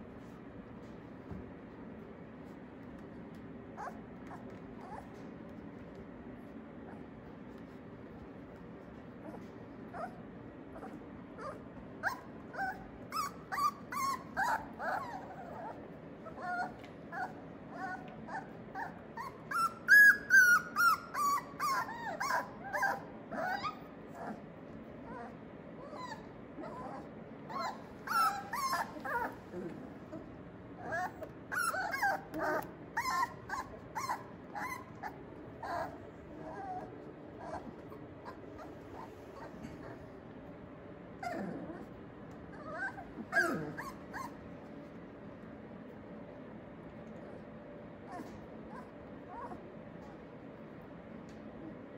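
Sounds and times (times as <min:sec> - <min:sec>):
puppies whimpering and yipping: 0:09.2 - 0:10.2, 0:10.8 - 0:24.4, 0:25.1 - 0:40.1, 0:42.5 - 0:44.4, 0:48.1 - 0:49.6.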